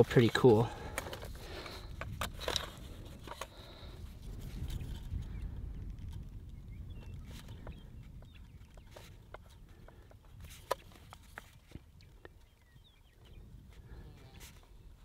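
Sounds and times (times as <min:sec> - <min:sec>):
wind rumble on microphone: 0:00.0 - 0:15.0
faint bird chirps: 0:11.9 - 0:15.0.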